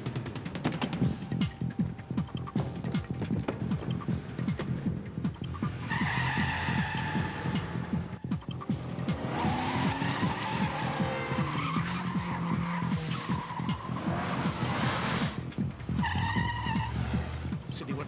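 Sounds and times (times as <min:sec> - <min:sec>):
driving music score: 0:00.0 - 0:18.0
tyres squealing: 0:00.1 - 0:18.0
car engine revving hard: 0:05.5 - 0:17.7.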